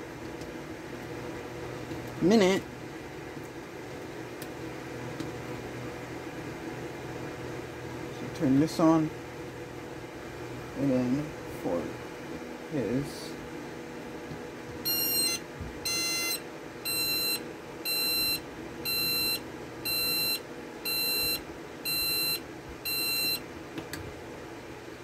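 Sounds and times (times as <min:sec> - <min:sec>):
alarm clock beeping: 0:14.8 - 0:23.4.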